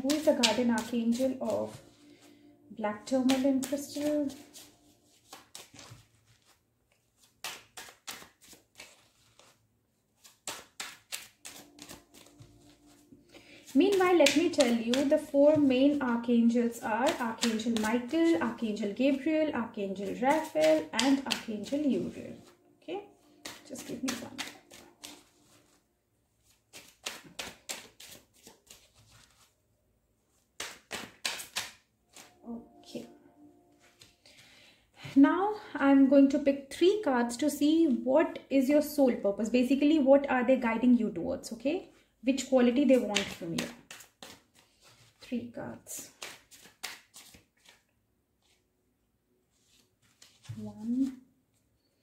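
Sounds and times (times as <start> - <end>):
cards being shuffled: 0.0 - 22.5, 23.2 - 25.8, 26.4 - 29.5, 30.3 - 32.4, 33.7 - 34.4, 42.3 - 48.6, 49.5 - 51.2.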